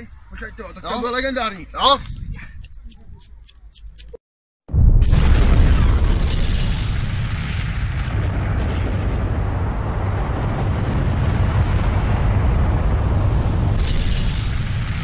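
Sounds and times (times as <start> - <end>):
deep explosion rumble: 4.7 - 15.0.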